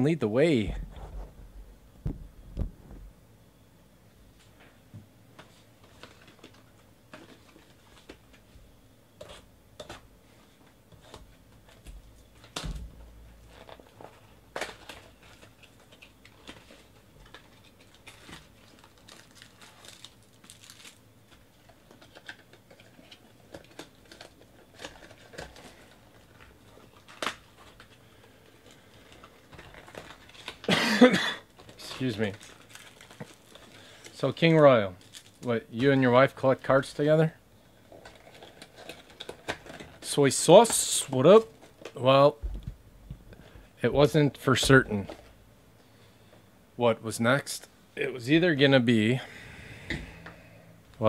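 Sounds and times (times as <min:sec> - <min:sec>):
card packs crinkling: 0:05.8 - 0:08.4, 0:13.4 - 0:42.3.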